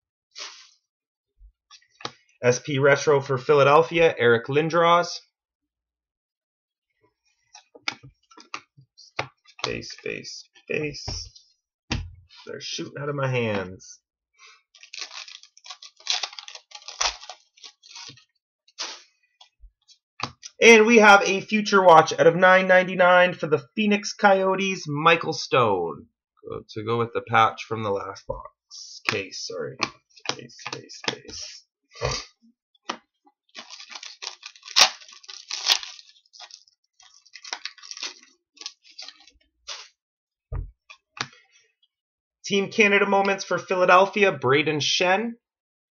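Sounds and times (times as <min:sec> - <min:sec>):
cardboard cards flicking and rustling: 0:14.8 - 0:19.0, 0:32.9 - 0:39.9.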